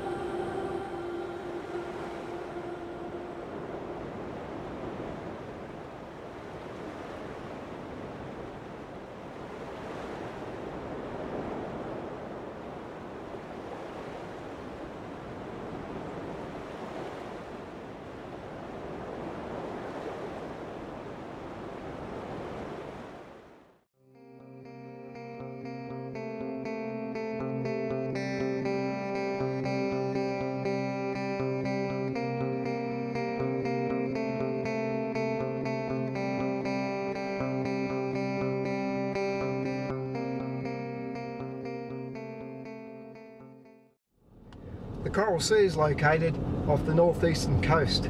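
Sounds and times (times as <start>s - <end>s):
waves washing onto beach: 0.0s - 23.8s.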